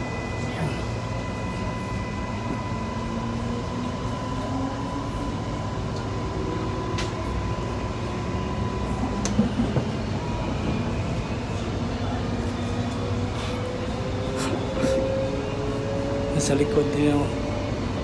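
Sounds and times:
electric train hum: 0:00.0 - 0:18.0.

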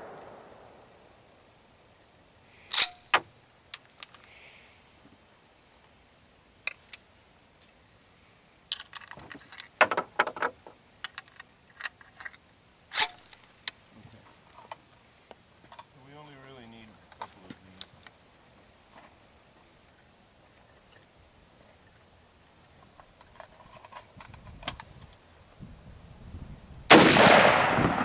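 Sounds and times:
rifle rattles and knocks: 0:08.7 - 0:12.4.

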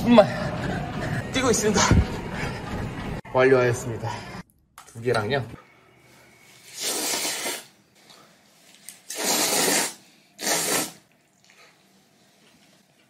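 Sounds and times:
person slurping noodles: 0:06.6 - 0:07.7, 0:09.0 - 0:11.9.

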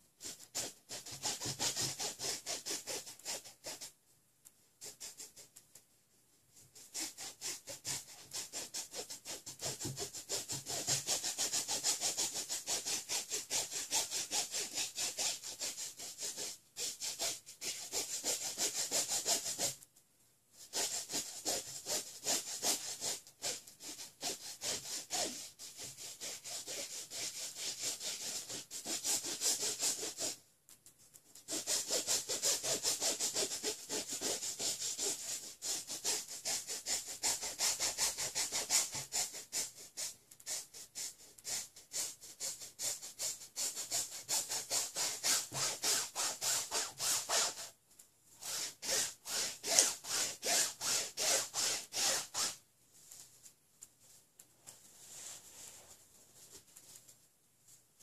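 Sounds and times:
paintbrush scraping on canvas: 0:06.6 - 0:19.8, 0:48.4 - 0:53.6, 0:54.6 - 0:57.1.

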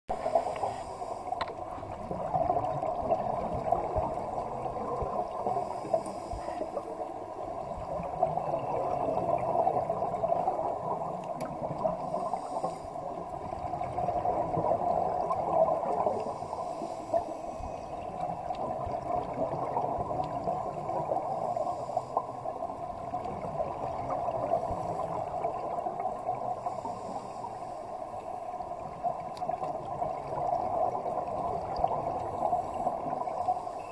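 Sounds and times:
faint hissing breaths: 0:00.1 - 0:01.8, 0:03.9 - 0:10.5, 0:11.8 - 0:13.9, 0:15.5 - 0:18.6, 0:20.4 - 0:23.1, 0:24.0 - 0:29.2, 0:32.0 - 0:33.9
underwater bubbles gurgling: 0:00.1 - 0:33.9.

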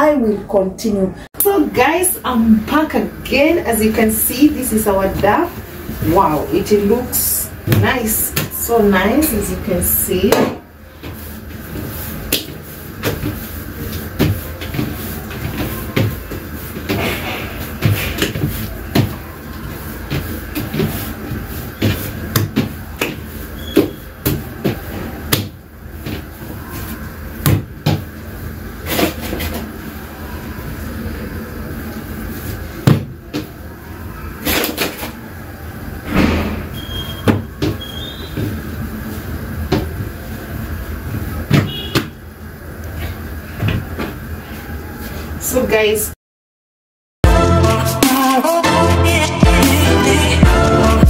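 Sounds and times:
dough kneaded on wooden counter: 0:03.9 - 0:29.8.

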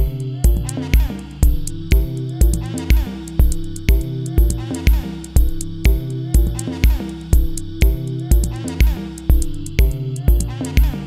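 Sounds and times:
dance music with kick drum: 0:00.0 - 0:11.0.

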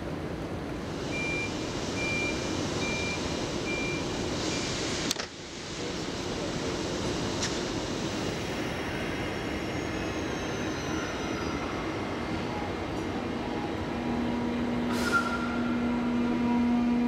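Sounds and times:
station platform rumbling: 0:00.0 - 0:17.0
short hiss: 0:14.9 - 0:15.4.

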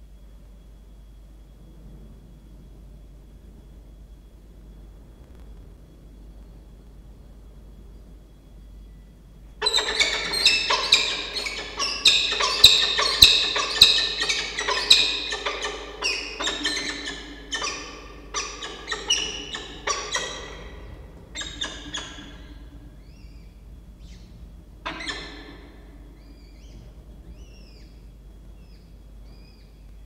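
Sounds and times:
falcons calling: 0:09.6 - 0:29.6.

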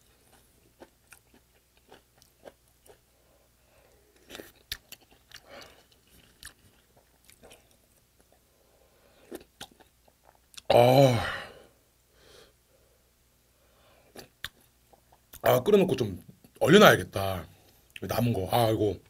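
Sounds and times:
wet chewing sounds: 0:00.0 - 0:03.1, 0:04.1 - 0:08.4
lip smacks and clicks: 0:14.2 - 0:15.4.

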